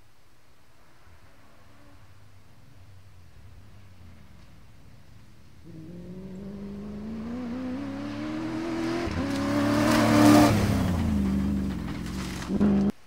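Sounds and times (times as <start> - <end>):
truck engine accelerating: 3.4 - 13.0
tyres on gravel: 9.0 - 13.0.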